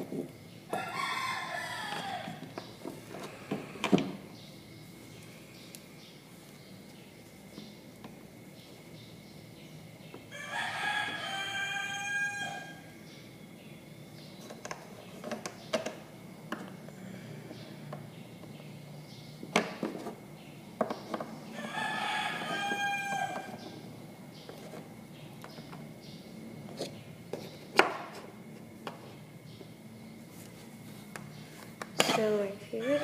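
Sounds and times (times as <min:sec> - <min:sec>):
rooster crowing: 0:00.7 - 0:02.5, 0:10.3 - 0:12.9, 0:21.5 - 0:23.7.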